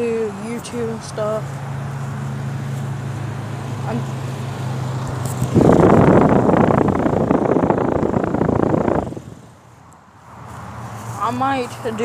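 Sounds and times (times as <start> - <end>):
fan exhaust rushing air: 0.0 - 11.4
air conditioner unit humming: 5.1 - 9.6.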